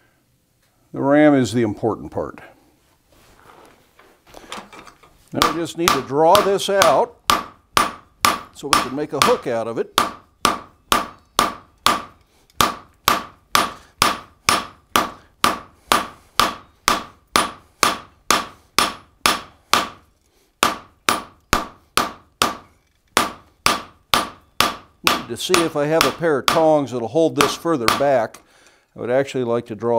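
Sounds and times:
hammer striking hot steel on anvil: 0:05.4 - 0:20.0, 0:20.6 - 0:26.7.

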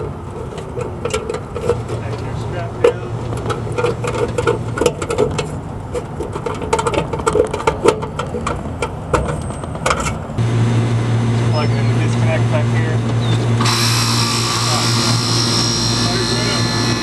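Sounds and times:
steady low hum: 0:10.4 - 0:17.0.

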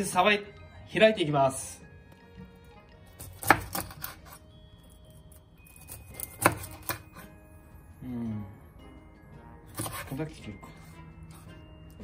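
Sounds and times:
faint background music: 0:00.0 - 0:12.0
knife cutting fish: 0:03.2 - 0:04.5, 0:05.7 - 0:07.3, 0:09.7 - 0:10.2.

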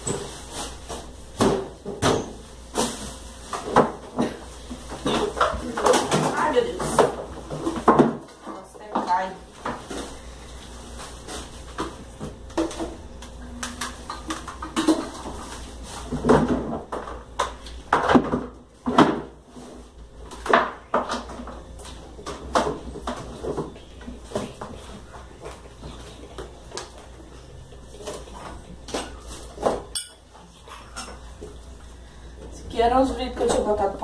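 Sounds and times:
dishes and pans clattering: 0:03.6 - 0:10.0, 0:13.8 - 0:17.1, 0:28.0 - 0:31.3.

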